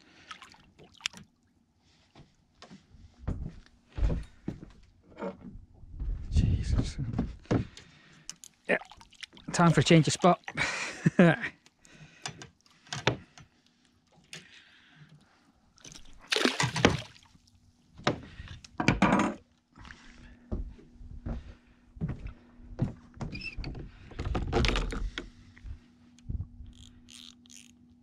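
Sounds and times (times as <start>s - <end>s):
water splashing: 0.2s - 1.2s, 8.6s - 10.8s, 15.8s - 17.5s
faint hum: 19.8s - 28.0s.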